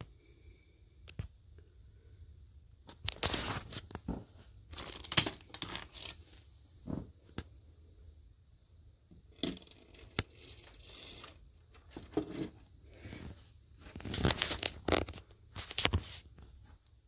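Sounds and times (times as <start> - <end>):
handling clicks and scrapes: 2.9 - 6.5, 9.3 - 16.7.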